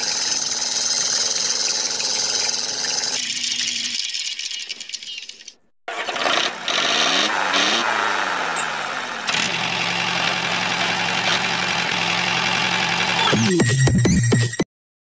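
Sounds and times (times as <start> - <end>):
small motor running: 0.0 - 4.0, 5.9 - 13.4.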